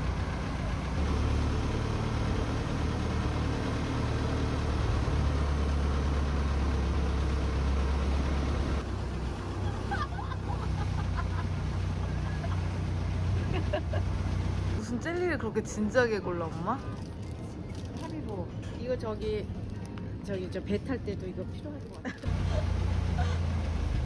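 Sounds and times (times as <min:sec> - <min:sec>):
boat engine humming: 0:00.0 - 0:14.8.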